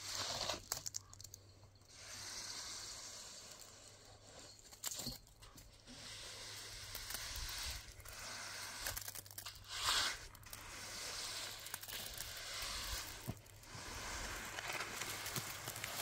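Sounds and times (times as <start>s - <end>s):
rustling crinkling handling noise: 14.2s - 16.0s.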